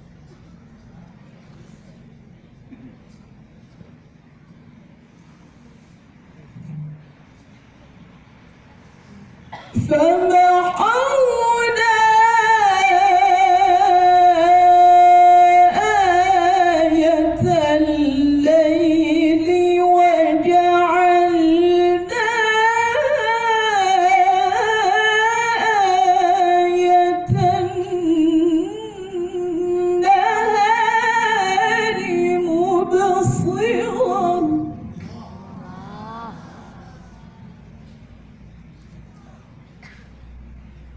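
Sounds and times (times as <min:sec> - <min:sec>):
woman reciting melodically: 0:09.6 - 0:39.6.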